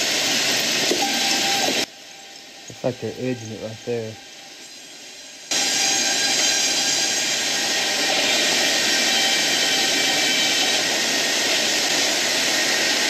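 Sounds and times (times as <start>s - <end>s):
sawmill edger running: 5.5s - 13.0s.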